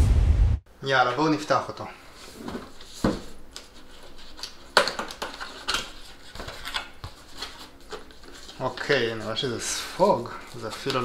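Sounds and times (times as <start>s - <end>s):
cardboard scraping and rustling: 2.2s - 11.0s.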